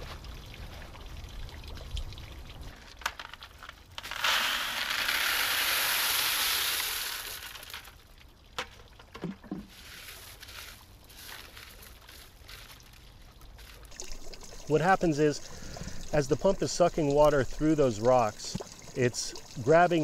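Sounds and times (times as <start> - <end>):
gravel pouring into crate: 4.0 - 8.0, 9.7 - 13.0.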